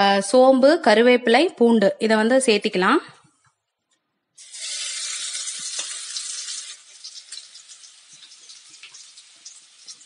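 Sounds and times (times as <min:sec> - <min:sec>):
spices sizzling in hot oil: 0:04.4 - 0:10.0.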